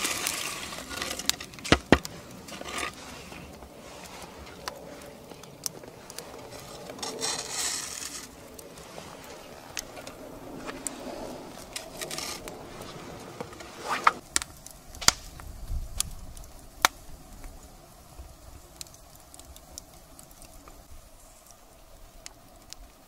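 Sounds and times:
rustling and scraping: 0.0 - 14.2
fire popping: 0.0 - 23.0
wood fire crackling: 0.0 - 23.0.

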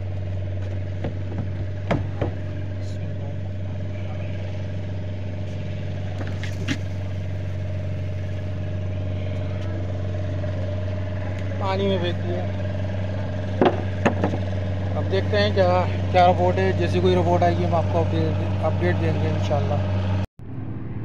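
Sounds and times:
engine idling: 0.0 - 20.3
sharp knocks: 1.0 - 2.6, 13.5 - 14.6.

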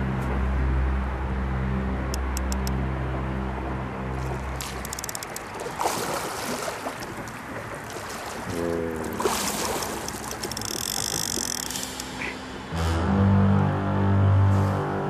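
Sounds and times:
water splashing against boat hull: 4.2 - 12.2
rapid clicks: 4.7 - 5.6, 10.0 - 12.2.

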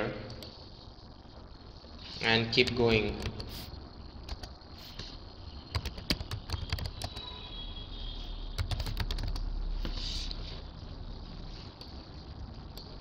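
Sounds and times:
low steady hum: 0.0 - 13.0
keyboard keys clicking: 4.3 - 4.5, 5.7 - 7.2, 8.6 - 9.5.

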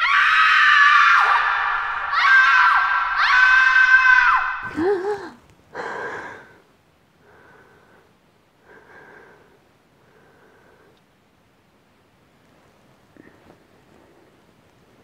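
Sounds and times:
woman gasping: 4.6 - 6.6
woman breathing: 4.6 - 11.1.

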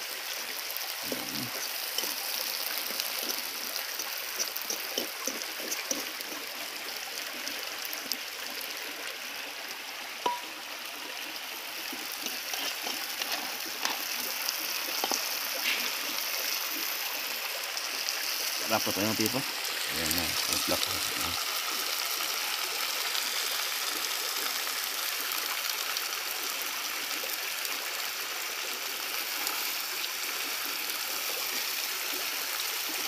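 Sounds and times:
small crackles and clicks: 1.1 - 6.6, 12.1 - 16.2.

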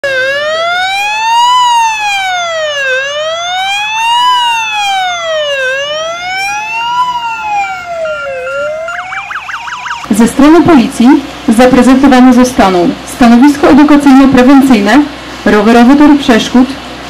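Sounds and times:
police siren wailing: 0.0 - 10.5.

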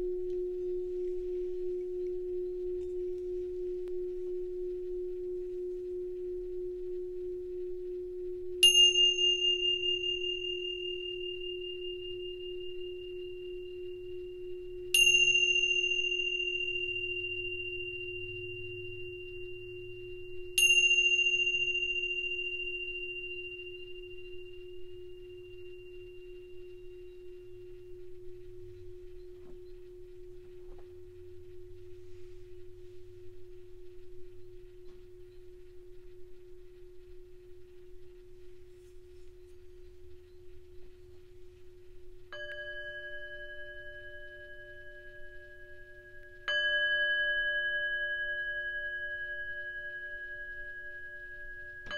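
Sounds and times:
low steady tone: 0.0 - 51.9
tingsha cymbals ringing: 0.0 - 51.9
small singing bowl struck with mallet: 8.6 - 31.2, 42.3 - 51.9.

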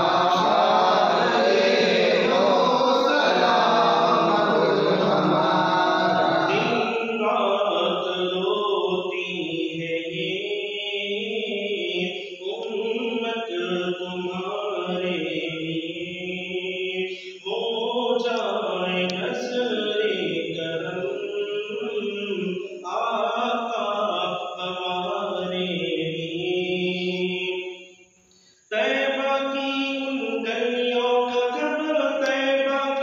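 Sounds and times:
man chanting unaccompanied: 0.0 - 27.8, 28.7 - 33.0.

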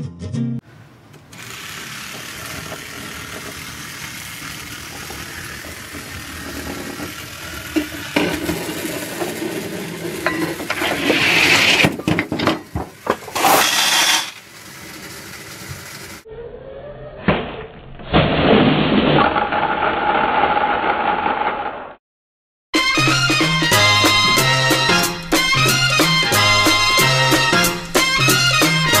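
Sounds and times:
toy train rolling on wooden track: 1.3 - 16.3
tin can rolling on table: 1.8 - 16.2
parts clattering and rattling: 2.1 - 16.0.

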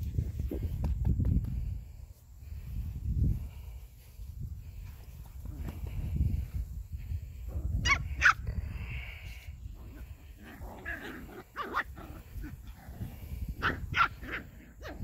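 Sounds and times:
puppies yipping and barking: 7.8 - 8.4, 10.0 - 15.0.

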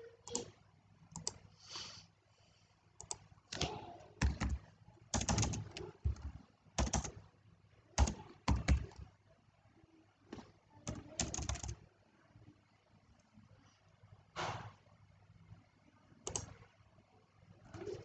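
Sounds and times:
computer keyboard typing: 0.2 - 1.4, 3.0 - 7.3, 7.9 - 9.1, 10.3 - 11.9, 16.2 - 16.7.

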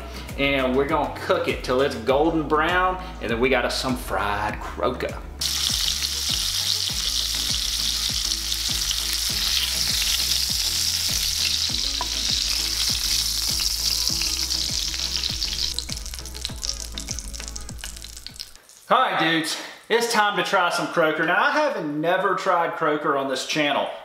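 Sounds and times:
fish sizzling in hot oil: 5.4 - 18.9.

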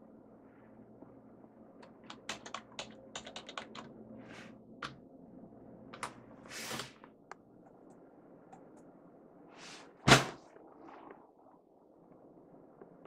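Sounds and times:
keyboard typing: 1.8 - 3.9.

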